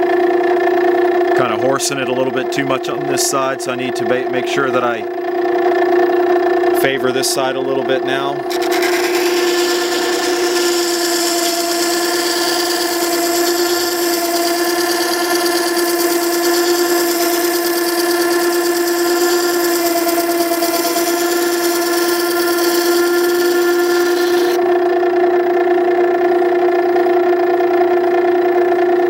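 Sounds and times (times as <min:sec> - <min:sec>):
sharpener motor humming: 0:07.8 - 0:24.6
chisel grinding hiss: 0:08.5 - 0:24.6.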